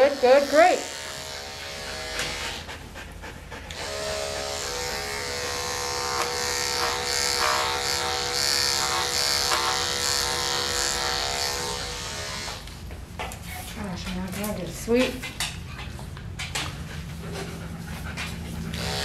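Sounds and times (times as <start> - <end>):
electric clippers humming: 0.0 - 2.7, 3.7 - 12.8, 18.7 - 19.0.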